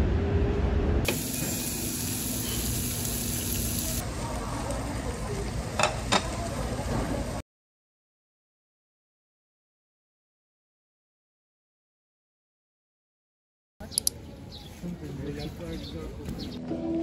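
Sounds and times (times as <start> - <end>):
meat sizzling on grill: 1.1 - 7.4.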